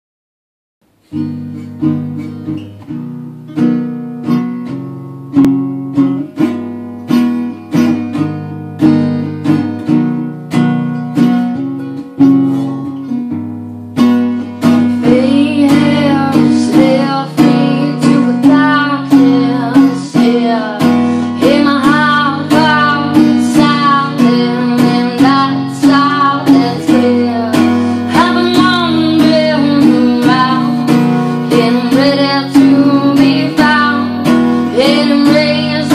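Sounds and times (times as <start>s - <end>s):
acoustic guitar strumming: 0.9s - 35.9s
woman singing: 14.6s - 35.9s.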